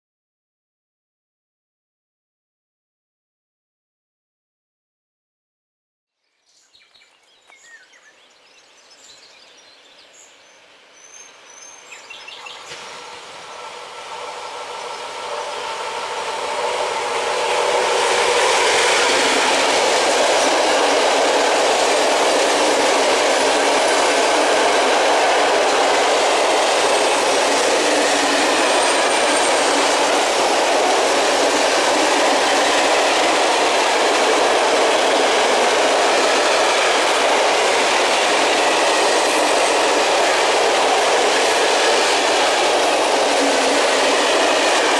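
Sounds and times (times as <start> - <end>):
freight train passing: 10.1 - 44.9
wheel and rail noise: 12.5 - 44.9.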